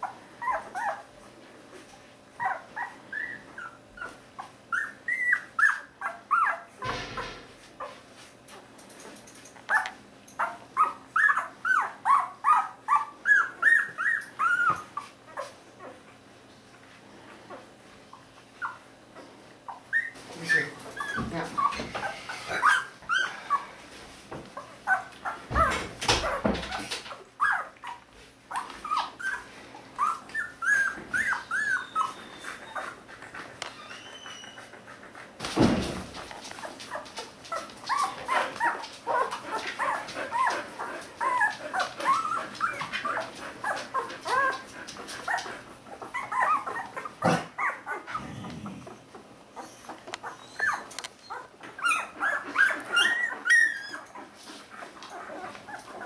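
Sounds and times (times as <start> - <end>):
puppies squeaking and whimpering: 0.0 - 1.2, 2.3 - 8.1, 9.7 - 16.3, 17.3 - 23.9, 24.5 - 56.0
knocks: 6.8 - 7.6.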